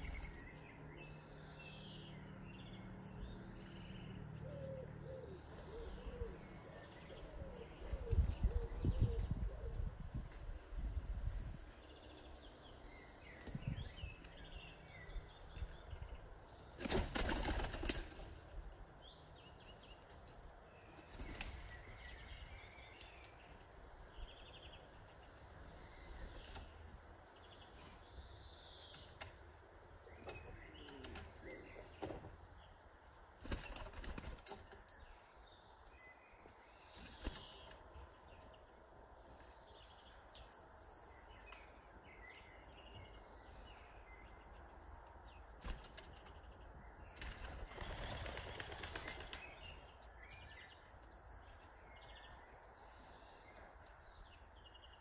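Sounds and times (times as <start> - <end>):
small birds chirping: 0.0 - 55.0
pigeon wings flapping: 16.8 - 18.4, 33.4 - 34.7, 47.2 - 49.5.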